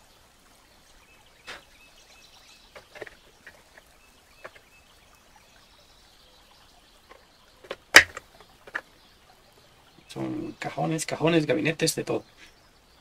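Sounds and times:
wooden pieces clicking and knocking: 2.8s - 4.6s, 7.1s - 8.9s.

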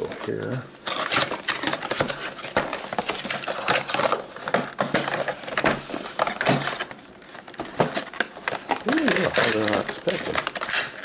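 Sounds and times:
cardboard box being opened: 7.6s - 11.0s.

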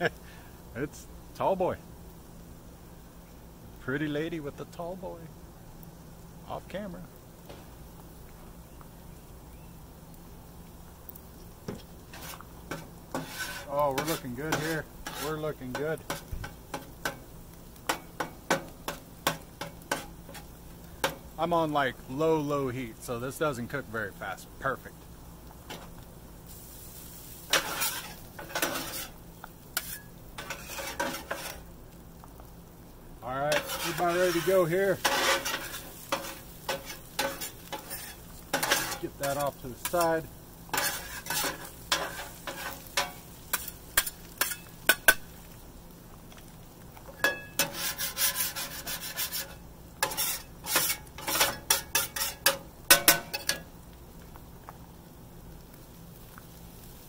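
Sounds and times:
faint sizzle: 0.0s - 57.0s
metal spatulas scraping griddle: 12.1s - 17.2s, 17.8s - 21.2s, 27.4s - 29.2s, 29.8s - 31.7s, 33.5s - 45.2s, 47.2s - 53.6s.

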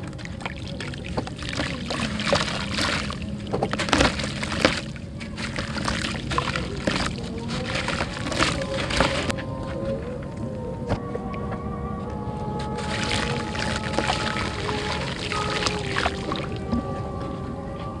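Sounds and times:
crumbs splashing into water: 0.0s - 9.3s, 12.8s - 16.7s
wet dirt crackling and crunching: 0.0s - 10.0s, 12.6s - 17.0s.

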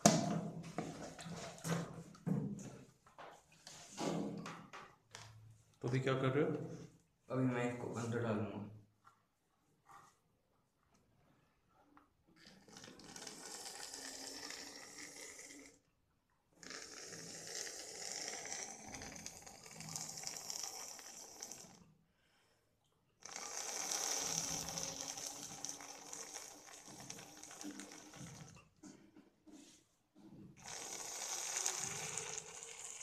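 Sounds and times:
air sucked through plastic tube: 12.4s - 15.9s, 16.6s - 21.9s, 23.2s - 28.7s, 30.6s - 33.0s.

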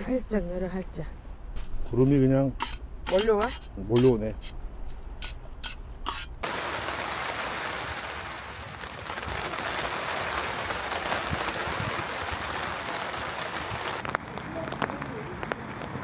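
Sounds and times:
rain falling: 6.4s - 16.0s.

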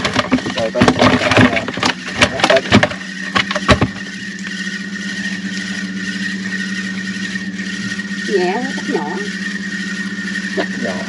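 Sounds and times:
engine hum: 0.0s - 11.0s.

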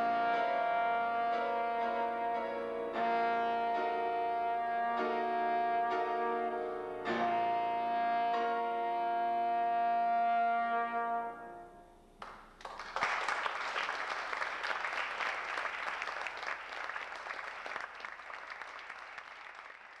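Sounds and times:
piano chord: 0.0s - 11.7s
trombone long note: 0.0s - 11.8s
audience applause: 12.2s - 20.0s.

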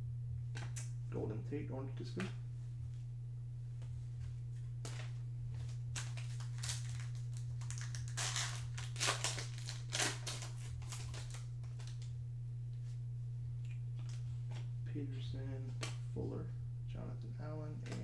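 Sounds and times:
steady low hum: 0.0s - 18.0s
plastic wrapper tearing and crinkling: 5.9s - 12.1s.

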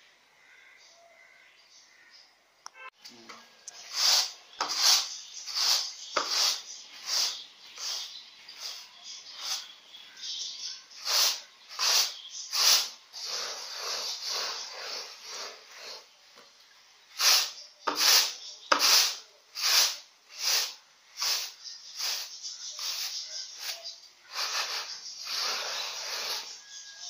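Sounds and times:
rice swishing in a plastic tray: 17.2s - 26.7s.

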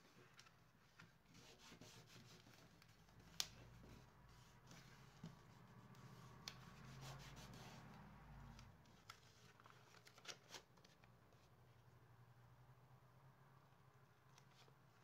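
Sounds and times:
soft hiss of paper: 0.0s - 12.0s, 14.0s - 15.0s
hands rubbing paper: 1.3s - 8.6s
light clicks and taps: 3.1s - 4.0s.

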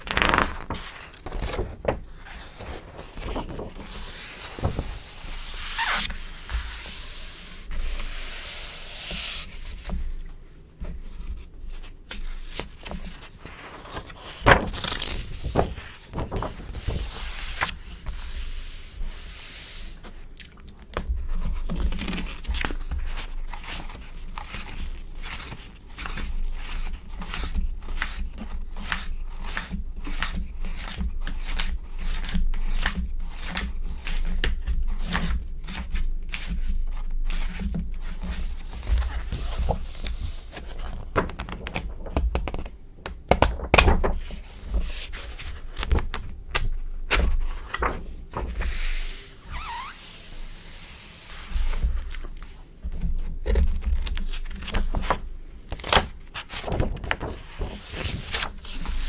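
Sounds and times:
paper crackling and tapping: 0.0s - 7.2s, 7.8s - 18.7s, 20.0s - 49.1s, 51.6s - 59.0s
magazine page turning: 0.0s - 10.4s, 11.2s - 28.1s, 43.4s - 59.0s.

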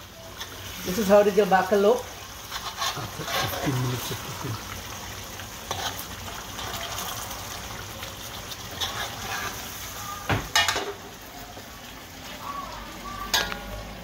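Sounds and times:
curry cooking in pot: 0.0s - 14.0s
metal spoon scraping pot: 2.5s - 3.7s, 8.7s - 9.7s.

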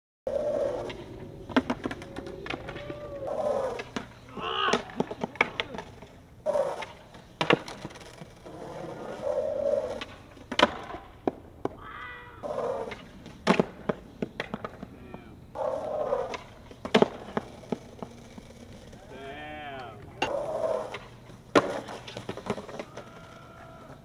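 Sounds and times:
skateboard wheels rolling: 0.3s - 24.0s
skateboard tail popping: 0.4s - 8.8s, 9.6s - 24.0s
skateboard slapping down: 0.6s - 9.0s, 9.8s - 19.2s, 19.8s - 24.0s.

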